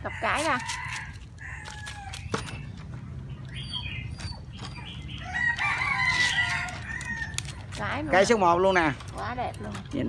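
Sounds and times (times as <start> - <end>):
rooster crowing: 0.0 - 2.2, 5.2 - 7.5.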